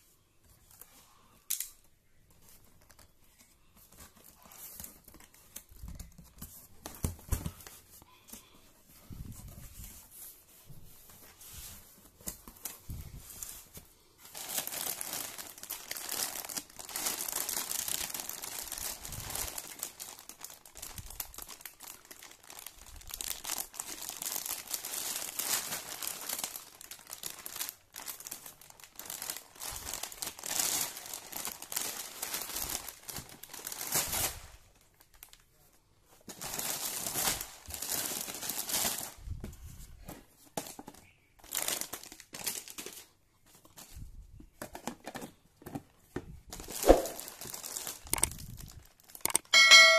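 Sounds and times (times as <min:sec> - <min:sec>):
plastic wrapper crinkling: 0:11.2 - 0:39.2, 0:40.7 - 0:44.0, 0:46.5 - 0:49.6.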